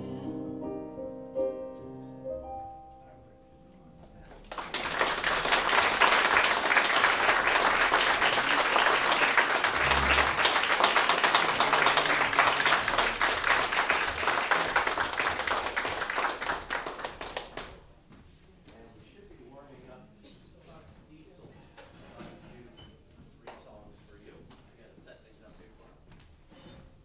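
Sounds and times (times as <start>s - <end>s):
audience applauding: 4.4s - 17.8s.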